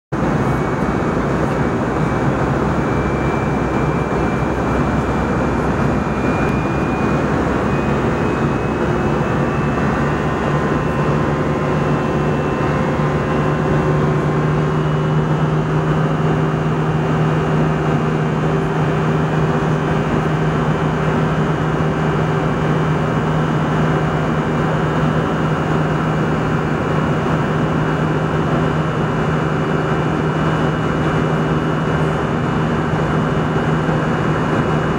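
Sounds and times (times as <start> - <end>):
airplane cabin air and engine noise: 0.2 - 34.9
faint high whine: 0.2 - 34.9.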